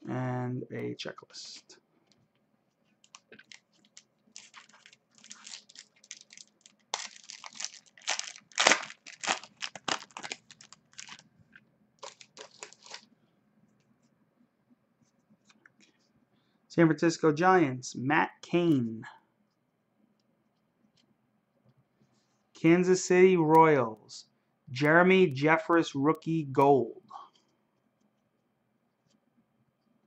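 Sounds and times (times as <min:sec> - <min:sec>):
card handling: 0:03.0 - 0:11.2, 0:12.0 - 0:13.1
foil wrapper crinkling and tearing: 0:03.0 - 0:11.2, 0:12.0 - 0:13.1.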